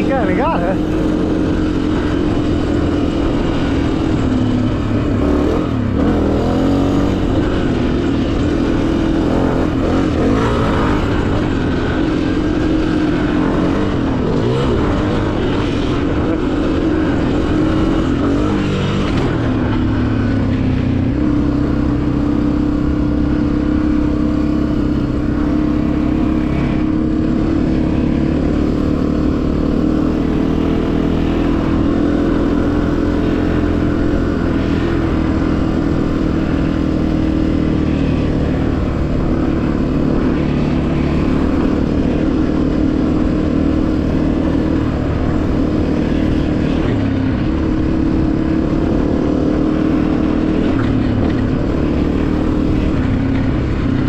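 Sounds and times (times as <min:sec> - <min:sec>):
motorbike engine running: 0:00.0 - 0:54.0.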